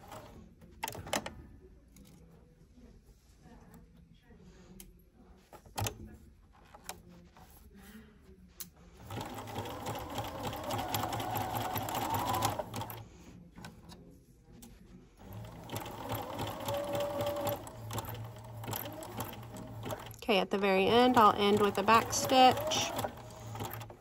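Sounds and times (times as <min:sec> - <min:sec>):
sewing machine stitching: 0:09.0 - 0:13.1, 0:15.2 - 0:24.0.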